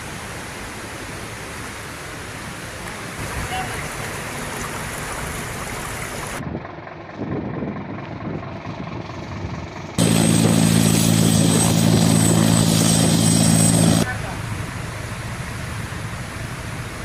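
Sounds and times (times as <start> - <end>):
rushing floodwater: 0.0 - 6.4
helicopter rotor hum: 5.9 - 17.0
high turbine whine: 6.1 - 17.0.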